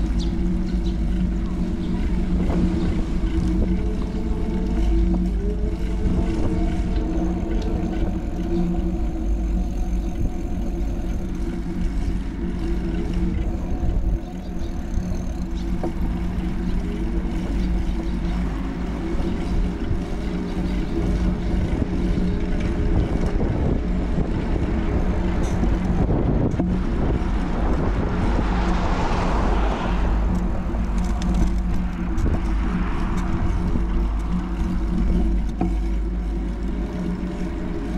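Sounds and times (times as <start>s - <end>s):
constant hum: 0.0s - 37.9s
low street rumble: 0.0s - 37.9s
car passing: 25.6s - 36.1s.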